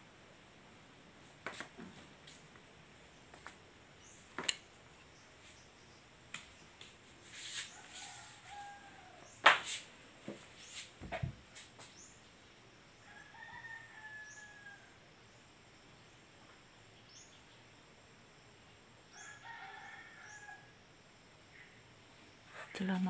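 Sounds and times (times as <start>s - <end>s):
rooster crowing: 7.7s - 9.4s, 13.0s - 15.0s, 19.1s - 20.8s.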